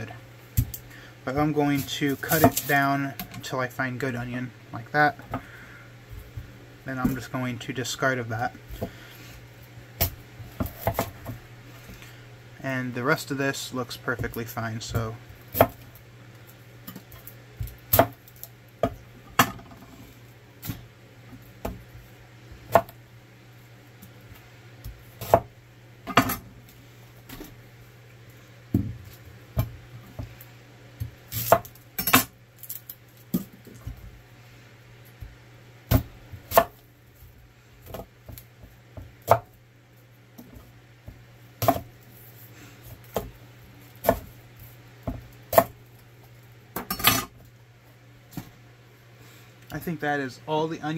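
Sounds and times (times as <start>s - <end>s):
knife chopping on wooden board: 41.6s - 41.9s.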